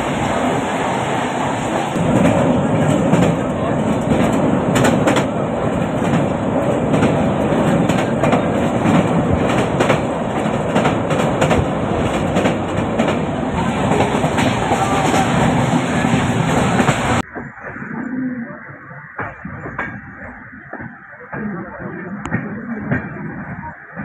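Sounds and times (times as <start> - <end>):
wheels clacking over rail joints: 0.0 - 17.8
train wheels rumbling on track: 0.0 - 24.0.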